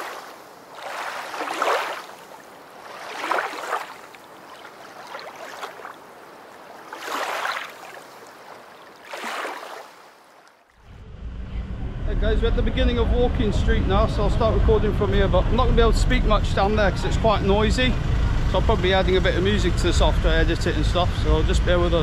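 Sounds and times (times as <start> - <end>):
water washing in swells: 0.0 - 10.8.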